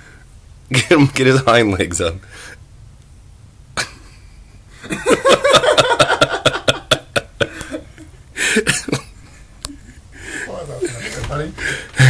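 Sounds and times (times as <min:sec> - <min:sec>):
person laughing: 0:03.8 - 0:10.0
breathy laugh: 0:03.8 - 0:12.0.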